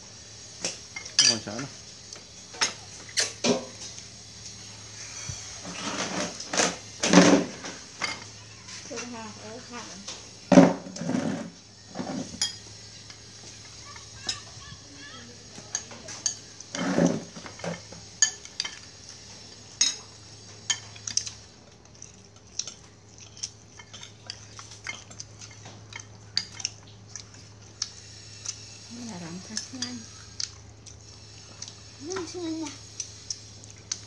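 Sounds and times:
spoons clinking against ceramic bowls: 1.0 - 1.5, 12.3 - 13.2, 15.7 - 16.9, 17.5 - 18.9, 19.8 - 21.3, 22.6 - 27.3.

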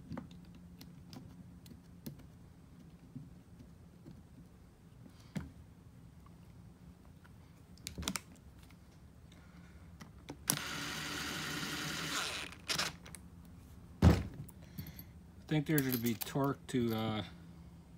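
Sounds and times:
cordless drill running: 10.5 - 13.0
metal parts clicking: 15.7 - 17.2.

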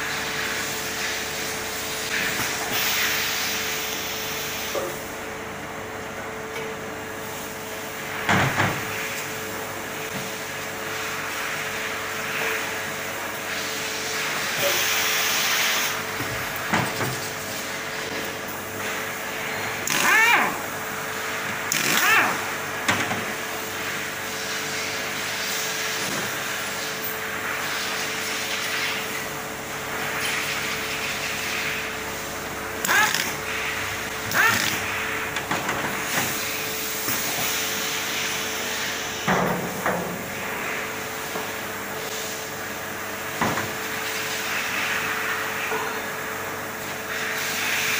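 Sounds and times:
machine hum: 0.0 - 47.9
air hissing: 13.5 - 16.0
pneumatic doors opening: 13.8 - 18.2.

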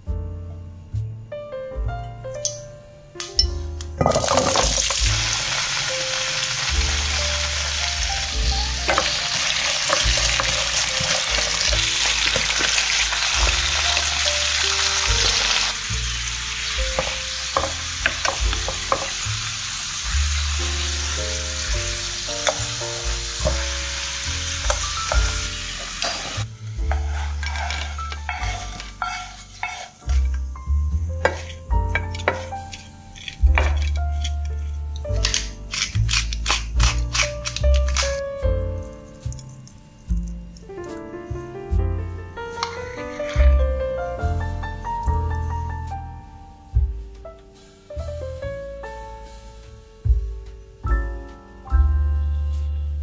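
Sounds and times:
potatoes sizzling in oil: 4.0 - 38.1, 42.5 - 45.2, 47.6 - 50.2
wooden spatula scraping pan: 24.6 - 30.6, 31.2 - 34.8, 42.6 - 43.6.

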